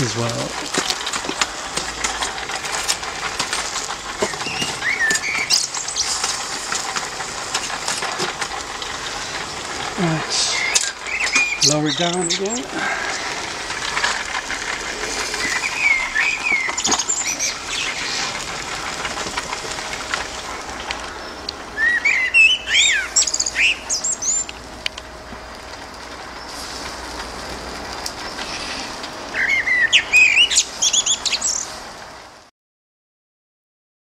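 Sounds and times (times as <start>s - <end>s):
songbird singing: 4.2s - 6.5s, 9.3s - 13.4s, 14.9s - 18.4s, 20.5s - 24.7s, 28.1s - 31.8s.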